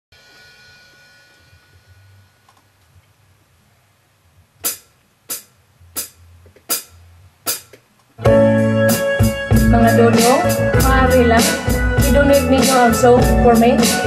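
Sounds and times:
cymbal hits on drum kit: 0.1s - 2.5s, 4.6s - 7.7s.

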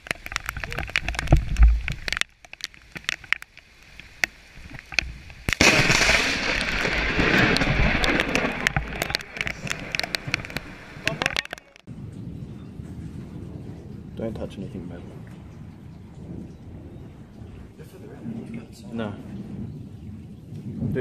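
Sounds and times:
rain clicks: 0.0s - 21.0s
thunder crack and rumble: 5.5s - 21.0s.

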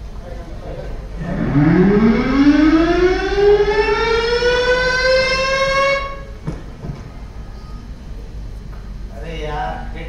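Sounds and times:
siren wailing: 1.2s - 6.4s.

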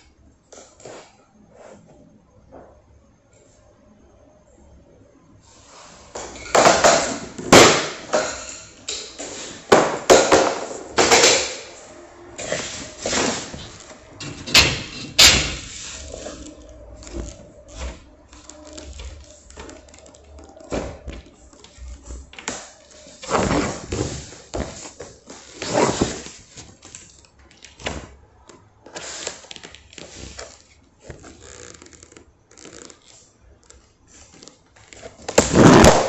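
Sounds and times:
handling noise: 12.4s - 33.2s.

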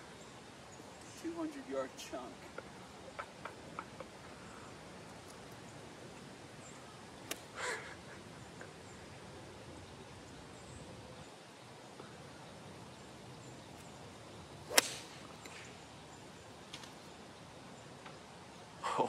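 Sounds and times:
faint outdoor background: 0.0s - 19.0s
golf club striking ball: 14.6s - 15.8s.

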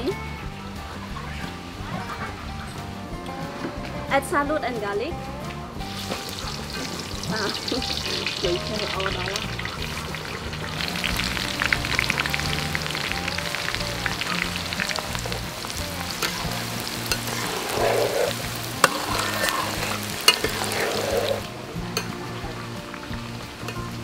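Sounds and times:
garlic sizzling in hot oil: 5.8s - 24.0s
metal ladle scraping wok: 14.3s - 22.2s
ladle knocking on wok: 18.7s - 21.3s.

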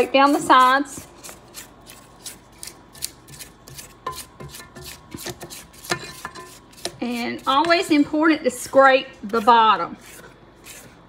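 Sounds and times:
spatula scraping metal bowl: 0.0s - 11.0s.

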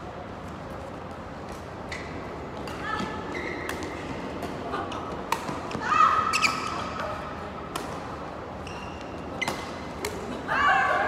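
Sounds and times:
racket hitting shuttlecock: 7.7s - 8.0s
shoes squeaking on floor: 8.6s - 9.6s.

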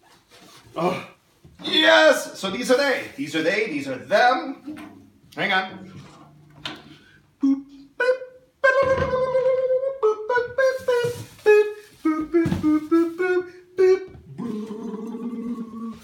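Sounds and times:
man singing wordless tune: 7.2s - 16.0s.

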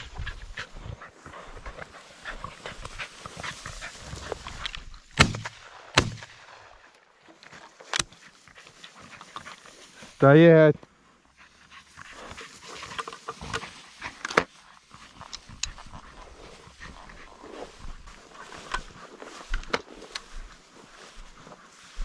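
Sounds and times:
dog panting: 0.0s - 4.8s, 8.2s - 10.2s, 11.2s - 19.5s
rustling in dry grass: 0.0s - 22.0s
shotgun shots: 5.2s - 6.6s.

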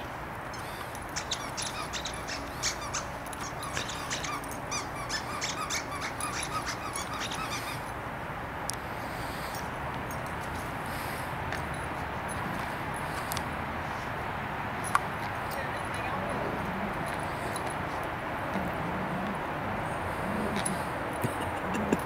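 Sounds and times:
dog toy squeaking: 0.5s - 7.9s.

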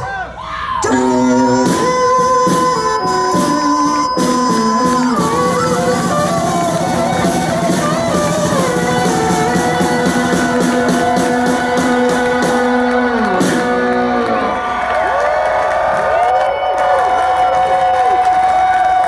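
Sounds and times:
drums: 0.0s - 19.0s
electric slide guitar: 0.8s - 14.8s.

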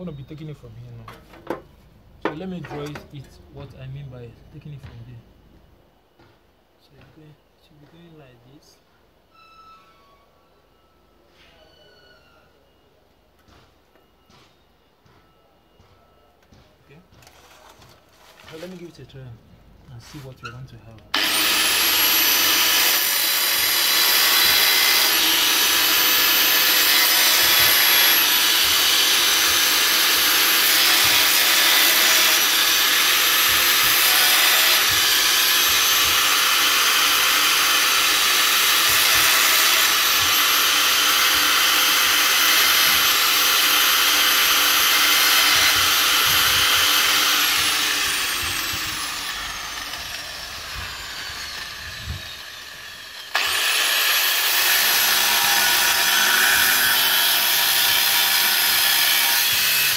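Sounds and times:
angle grinder motor whine: 21.1s - 59.9s
grinder cutting steel: 21.2s - 59.9s.

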